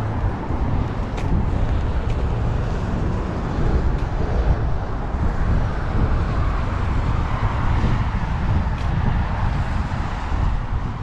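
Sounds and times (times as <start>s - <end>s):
cars passing: 0.0s - 11.0s.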